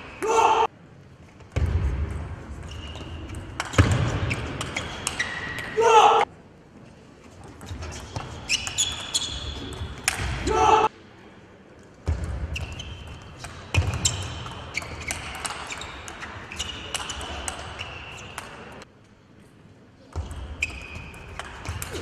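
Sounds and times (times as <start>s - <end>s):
shoes squeaking on floor: 2.6s - 5.8s, 7.6s - 10.0s, 12.5s - 18.4s, 20.3s - 22.0s.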